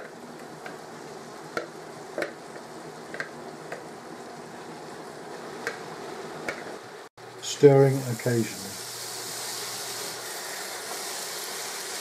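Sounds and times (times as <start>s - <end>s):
meat sizzling in a pan: 7.6s - 12.0s.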